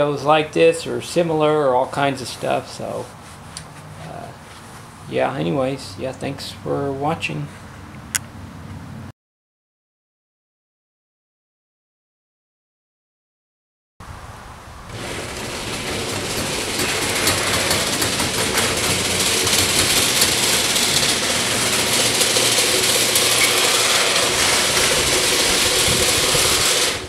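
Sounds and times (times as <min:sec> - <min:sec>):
garage door rolling up: 0:14.8 - 0:27.0.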